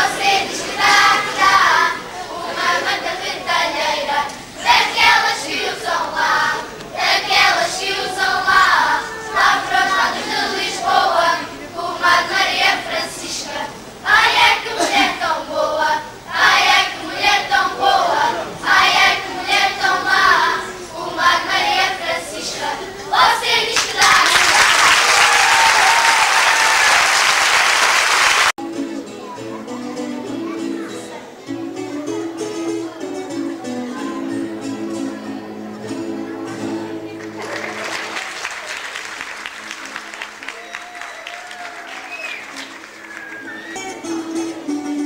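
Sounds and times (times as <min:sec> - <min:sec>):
children's choir singing: 0:00.0 - 0:28.5, 0:30.4 - 0:38.9, 0:41.8 - 0:45.0
applause: 0:23.8 - 0:28.6, 0:37.2 - 0:43.6.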